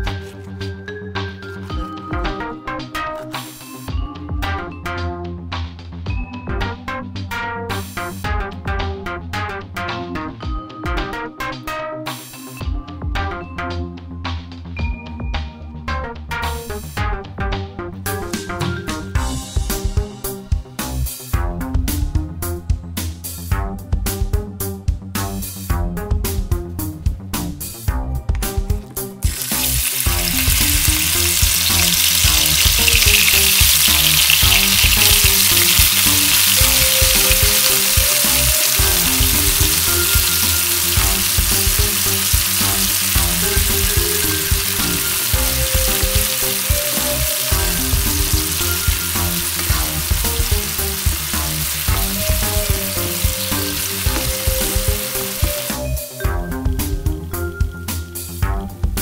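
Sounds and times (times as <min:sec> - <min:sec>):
background music: 0:00.0 - 0:59.0
meat sizzling in hot oil: 0:29.2 - 0:56.2.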